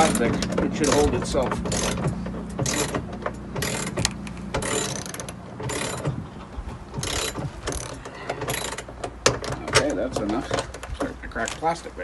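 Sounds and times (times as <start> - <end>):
ratchet wrench clicking: 0.0 - 6.1, 7.0 - 8.9.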